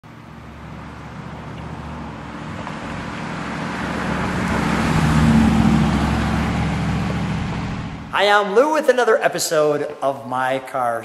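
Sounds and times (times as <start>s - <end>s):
car driving past: 0.2s - 8.3s.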